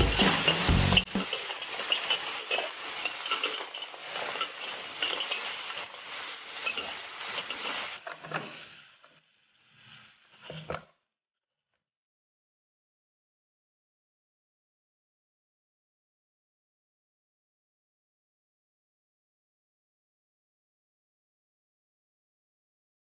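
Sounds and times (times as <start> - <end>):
spatula scraping wok: 0.0 - 10.8
mussels sizzling in a wok: 0.0 - 11.0.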